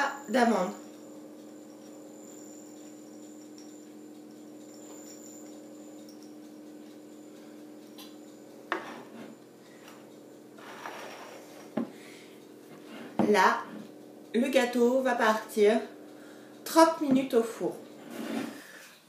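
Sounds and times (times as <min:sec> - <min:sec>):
low hum: 0:00.0 - 0:18.2.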